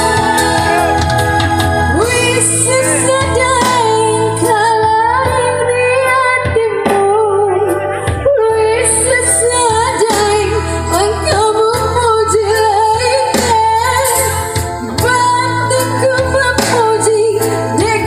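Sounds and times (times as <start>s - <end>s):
keyboard playing chords and bass: 0.0s - 18.0s
woman singing with vibrato: 0.0s - 18.0s.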